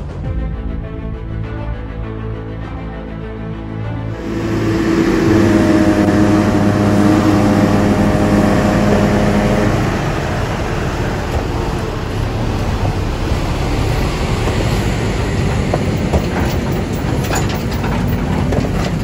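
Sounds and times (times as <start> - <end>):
diesel truck running: 4.0 - 19.0
steady multi-tone hum: 4.1 - 16.2.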